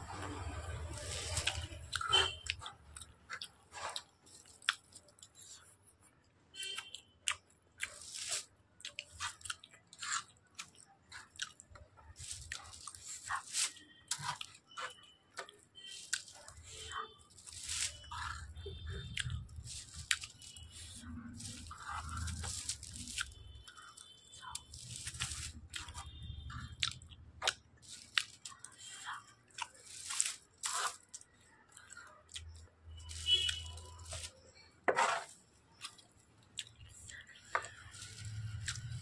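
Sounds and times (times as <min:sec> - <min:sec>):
wet chewing and mouth clicks: 0:00.1 - 0:39.0
noodles slurped: 0:07.8 - 0:15.0, 0:15.8 - 0:36.0.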